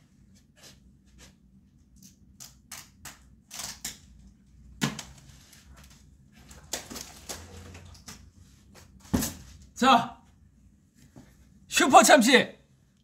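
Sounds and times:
paper rustling and crinkling: 5.2 - 9.1.

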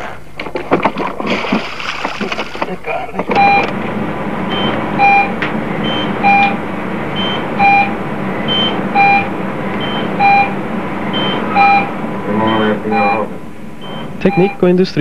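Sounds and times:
steady background hum: 0.0 - 15.0
two-note electronic beeps: 7.2 - 10.5, 11.1 - 14.6.

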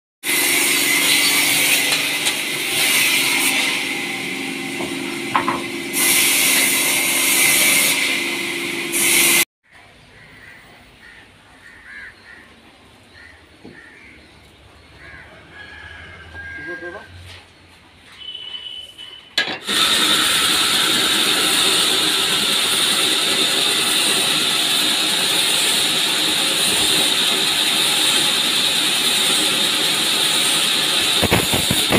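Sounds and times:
band saw sawing timber: 0.2 - 9.5, 19.6 - 31.9
saw whine: 0.2 - 9.5, 19.6 - 31.9.

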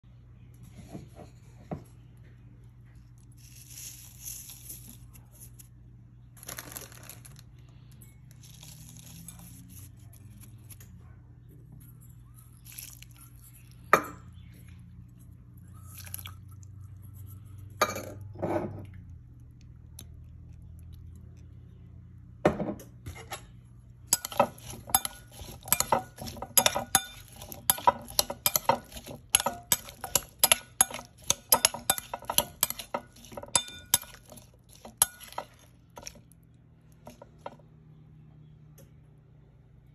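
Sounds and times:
steady low hum: 13.2 - 39.9
metal spoon clinking against bowl: 24.1 - 36.2.

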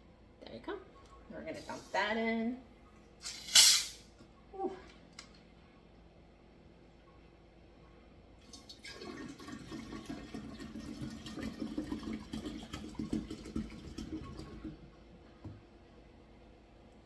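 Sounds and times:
liquid pouring into glass jar: 8.4 - 14.7.

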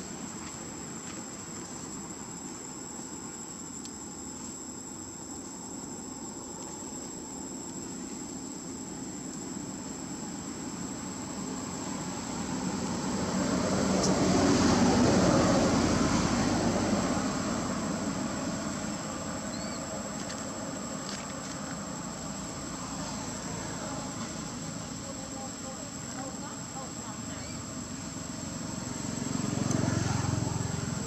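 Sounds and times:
high insect drone: 0.0 - 31.0
engine passing by: 11.2 - 19.6, 27.1 - 31.0.

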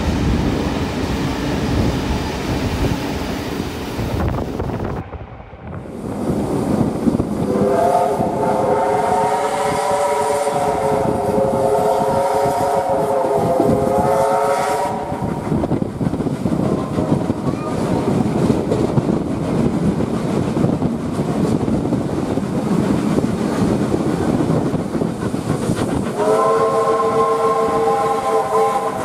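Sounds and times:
train wheels clattering on rails: 5.7 - 29.0
steam locomotive whistle: 7.4 - 15.4, 26.1 - 29.0.

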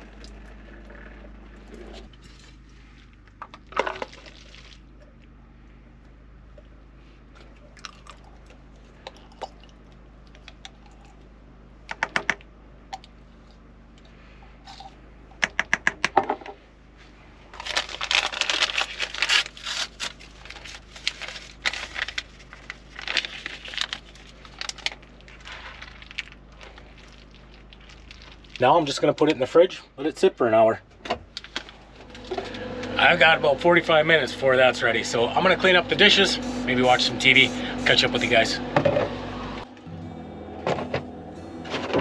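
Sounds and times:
paper packet tearing and crinkling: 17.6 - 28.6.

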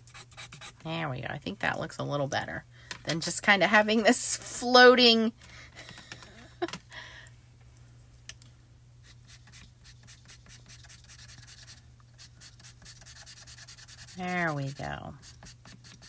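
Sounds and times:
steady low hum: 0.0 - 16.0
pencil scratching on paper: 9.0 - 16.0.

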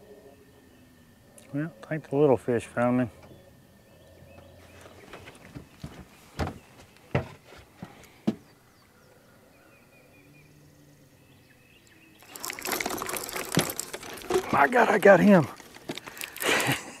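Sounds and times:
footsteps on boat deck: 4.9 - 8.5
thuds and knocks on boat deck: 5.6 - 7.4.

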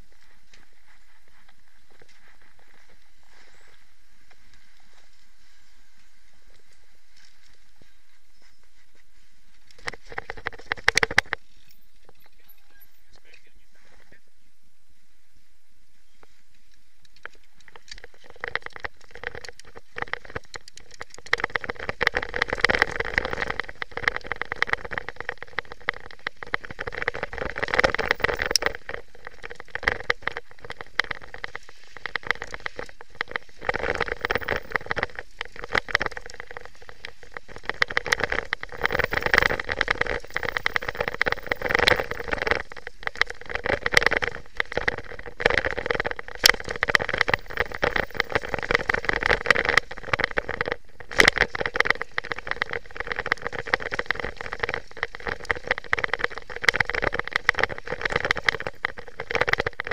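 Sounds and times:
mountain bike rattling over bumps: 9.2 - 13.5, 17.1 - 59.9
tyre noise on dirt: 16.0 - 59.9.

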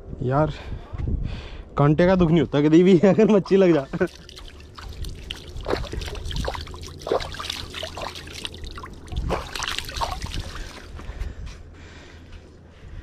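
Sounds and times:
hands splashing in water: 3.7 - 11.0.

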